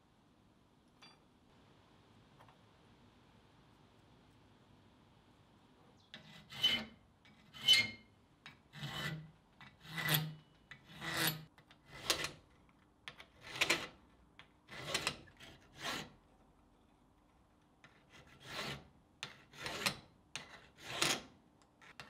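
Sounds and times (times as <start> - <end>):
hand file rasping on steel rod: 6.2 - 8.0, 8.7 - 12.4, 14.7 - 16.2, 18.0 - 21.2.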